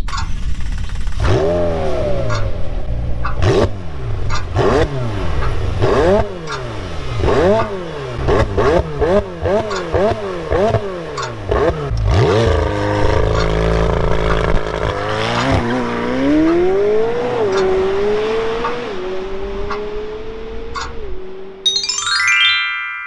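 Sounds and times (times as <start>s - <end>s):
sharp exhaust cracks: 0.0s - 17.8s
sports car engine revving: 0.3s - 21.6s.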